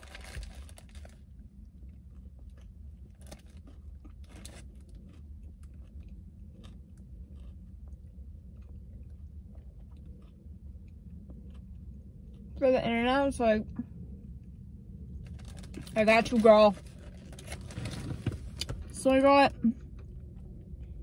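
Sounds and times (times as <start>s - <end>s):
crunches while chewing: 0.0s - 12.6s
person biting and chewing: 2.0s - 12.6s.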